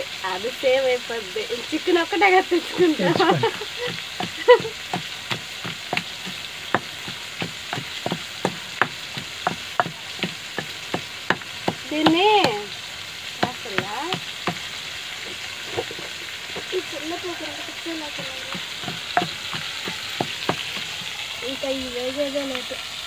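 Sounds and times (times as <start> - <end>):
woman speaking: 0.0 - 4.7, 11.8 - 12.7, 13.4 - 14.2, 16.6 - 18.6, 21.4 - 22.8
pestle pounding in mortar: 3.1 - 12.7, 13.4 - 14.7, 18.1 - 21.1.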